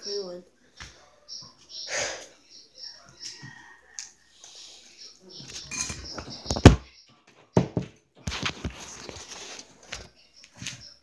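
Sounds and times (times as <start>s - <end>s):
sharp knocks and clattering: 5.5s - 8.8s
rubbing on microphone: 8.3s - 9.9s.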